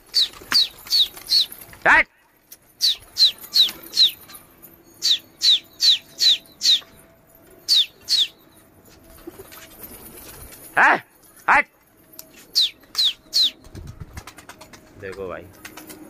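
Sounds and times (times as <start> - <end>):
small animal chirping: 12.5 - 13.8.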